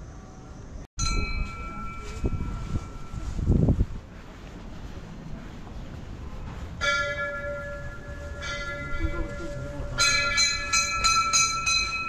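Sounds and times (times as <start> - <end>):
temple bells ringing: 1.0 - 3.5, 6.8 - 12.0.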